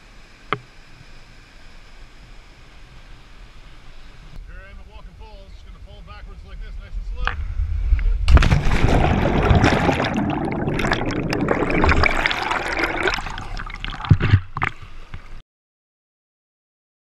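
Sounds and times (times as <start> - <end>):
churning water and bubbles: 8.2 - 15.4.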